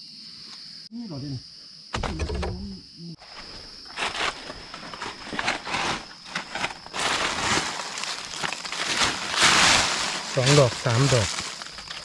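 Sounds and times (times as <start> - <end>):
footsteps crunching through leaf litter: 3.9 - 12.0.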